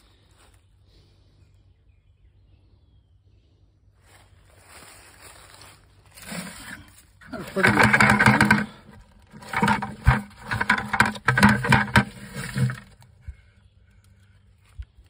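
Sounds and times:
rustling against plastic bucket: 5.2s - 13.6s.

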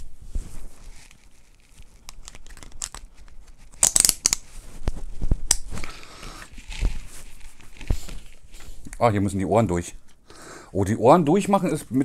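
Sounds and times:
helmet rustling and scraping: 0.0s - 2.0s, 4.4s - 9.0s
chin strap clicks: 3.7s - 4.4s, 5.4s - 6.0s.

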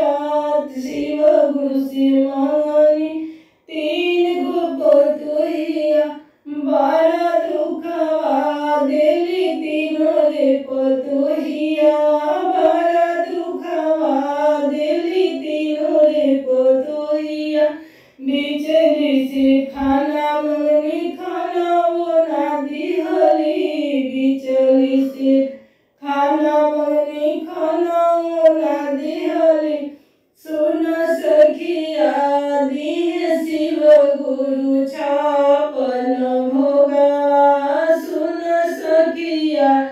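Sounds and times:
woman singing devotional song: 0.0s - 39.9s.

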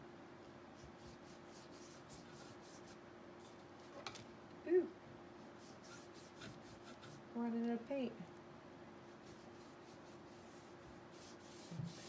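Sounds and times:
low steady hum: 0.0s - 12.0s
paintbrush brushing on canvas: 0.8s - 3.0s, 5.5s - 7.2s, 9.1s - 12.0s.

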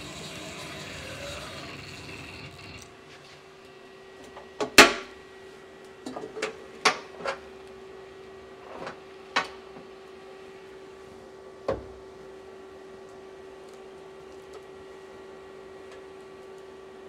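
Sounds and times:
steady hum: 0.0s - 3.3s.

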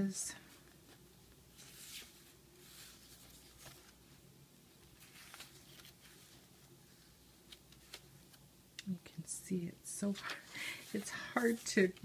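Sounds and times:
pages turning: 0.8s - 4.1s, 4.9s - 8.4s.

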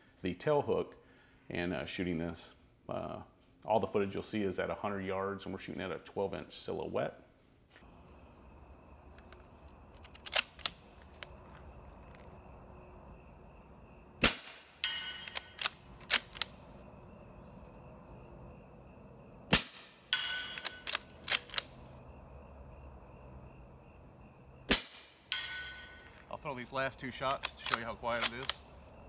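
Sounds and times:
metallic bolt clicks: 9.1s - 11.4s, 14.6s - 16.7s, 19.6s - 21.8s, 27.1s - 28.7s
suppressed gunshots: 14.2s - 16.7s, 19.5s - 21.8s, 24.7s - 26.1s.

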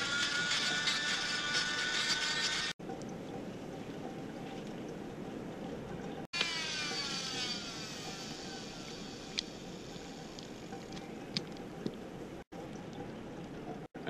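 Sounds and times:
bone saw motor winding down: 6.4s - 9.5s.

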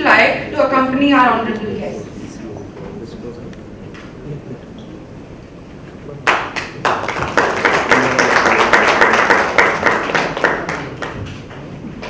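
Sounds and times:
audience applauding: 6.2s - 11.6s.

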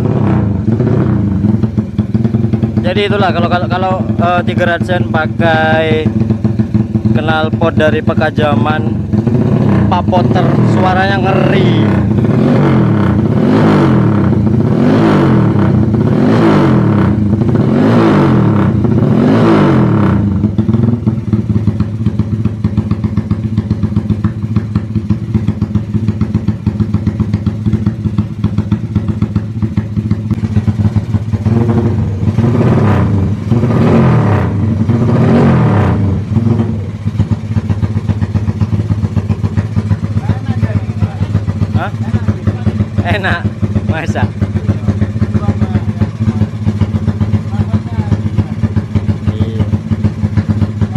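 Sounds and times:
motorcycle engine idling: 0.0s - 50.9s
motorcycle engine revving: 0.0s - 50.9s.

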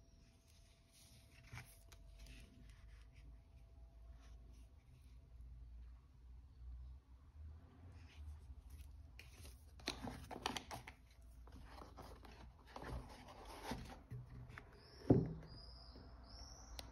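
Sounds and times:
cardboard box rustling and scraping: 11.4s - 15.4s.

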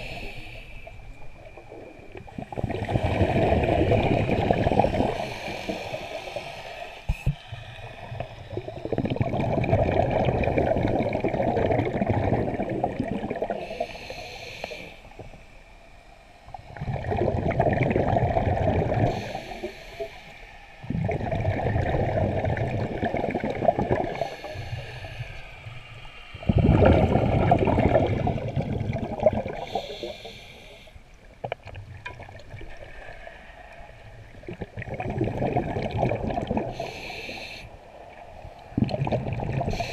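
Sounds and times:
high hiss through scuba regulator: 0.0s - 1.0s, 5.0s - 8.7s, 13.5s - 15.2s, 19.1s - 20.8s, 24.1s - 26.4s, 29.6s - 31.0s, 36.7s - 37.8s
exhaled air bubbling underwater: 0.0s - 39.9s.

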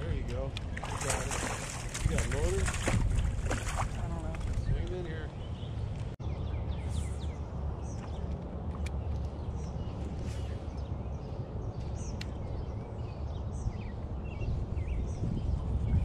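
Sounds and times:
birds chirping and singing: 9.0s - 16.0s.

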